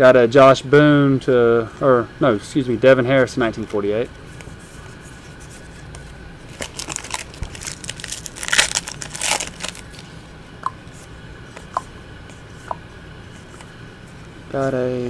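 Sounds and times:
trading cards rustling: 5.3s - 10.2s.

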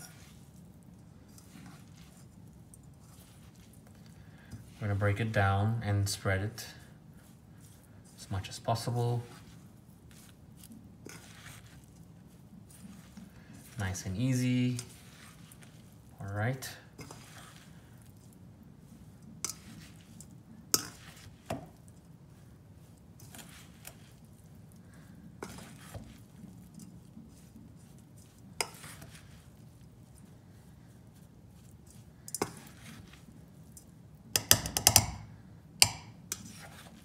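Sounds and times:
fork clinking in metal bowl: 19.4s - 19.7s, 20.7s - 21.1s.

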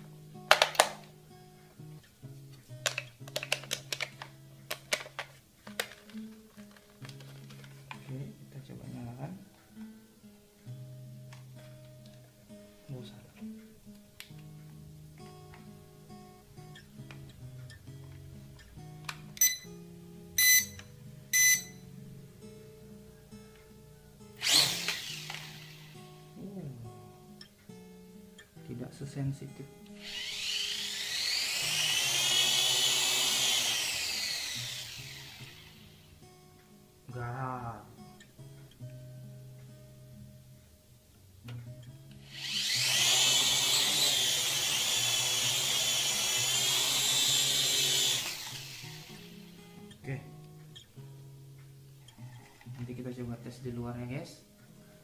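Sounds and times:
guitar background music: 0.0s - 55.0s
high electronic beeps: 19.4s - 19.7s, 20.4s - 21.8s
toy drone propellers whining: 24.4s - 26.0s, 30.0s - 36.0s, 42.2s - 49.5s.

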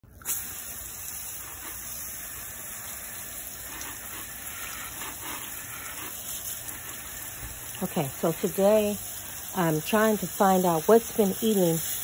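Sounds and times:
garden hose spraying water: 0.0s - 12.0s.

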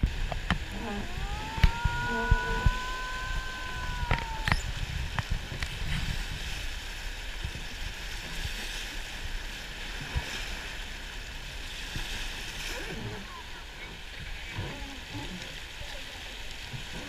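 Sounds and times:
low rumble: 0.0s - 6.5s
river rapids rushing: 0.6s - 4.8s.

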